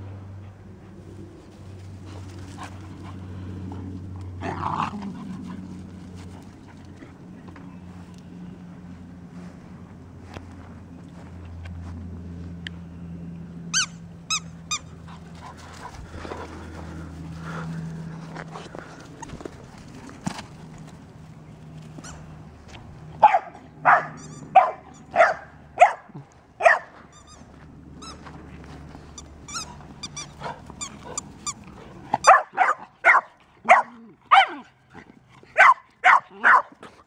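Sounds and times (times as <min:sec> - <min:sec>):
dog barking: 0:23.2 - 0:26.9, 0:32.2 - 0:34.7, 0:35.6 - 0:36.7.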